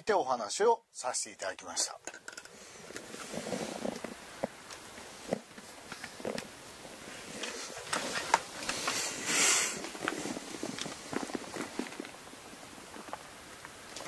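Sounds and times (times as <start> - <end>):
short hiss: 7.5 - 10.4.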